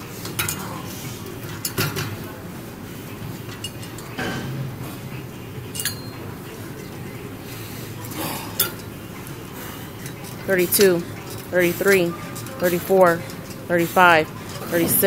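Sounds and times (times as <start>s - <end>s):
gym background hum: 0.0s - 15.0s
metallic clinks of weight machine: 5.7s - 6.2s.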